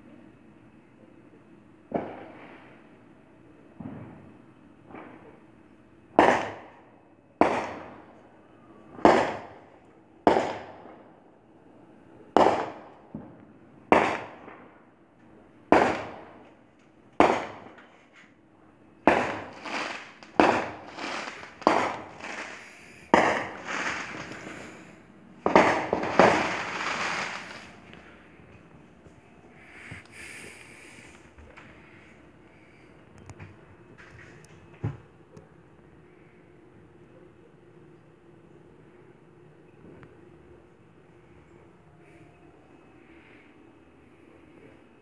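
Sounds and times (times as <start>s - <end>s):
sharp bangs: 13.9s - 14.6s, 15.7s - 16.5s, 17.2s - 17.9s, 19.0s - 28.4s.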